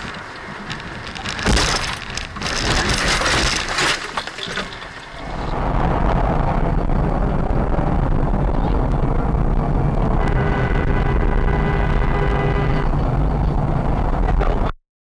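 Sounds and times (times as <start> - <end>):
car crash crunching and rattling: 0.0 - 5.5
engine and road noise: 0.0 - 14.8
sharp clinks of debris: 1.3 - 5.2.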